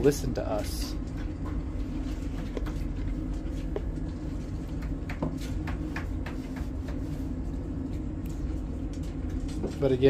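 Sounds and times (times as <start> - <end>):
steady low hum: 0.0 - 10.0.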